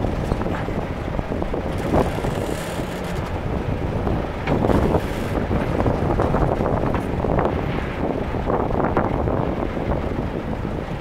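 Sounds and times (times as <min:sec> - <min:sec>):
backhoe engine running: 0:00.0 - 0:07.1
wind buffeting microphone: 0:00.0 - 0:11.0.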